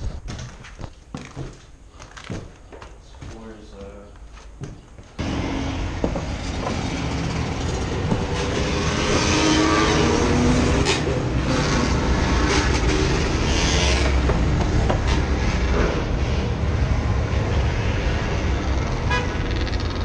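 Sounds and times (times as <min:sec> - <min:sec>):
loud rumbling and rattling: 0:05.2 - 0:20.0.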